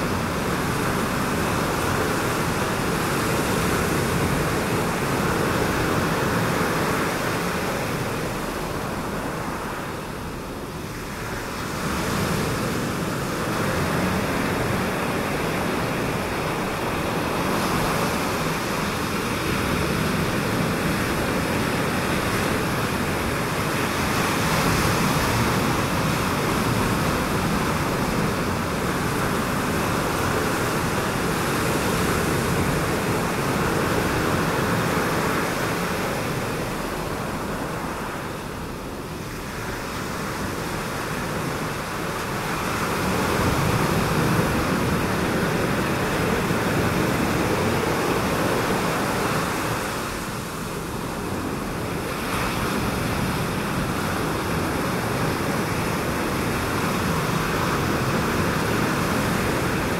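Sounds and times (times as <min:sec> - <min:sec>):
waves breaking over reef: 0:00.0 - 0:59.9.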